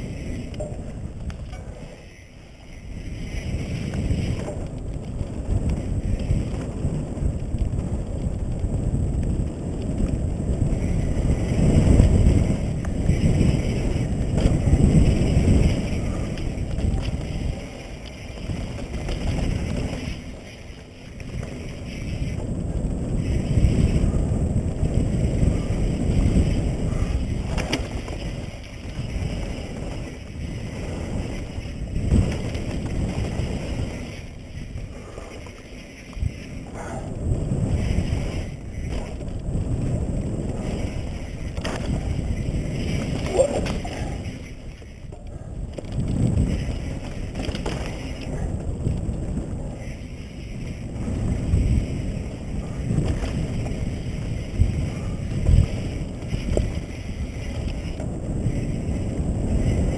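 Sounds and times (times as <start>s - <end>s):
bike tyres rumbling on dirt: 0.0s - 59.9s
wind buffeting microphone: 0.0s - 59.9s
bike knocking over bumps: 26.2s - 34.2s, 38.8s - 44.2s, 45.1s - 49.0s.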